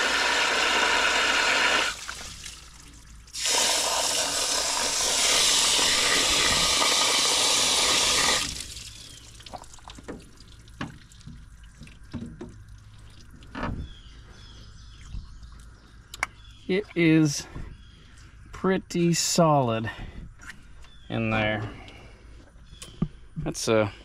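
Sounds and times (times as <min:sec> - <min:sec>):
water rushing from garden hose: 0:00.0 - 0:13.6.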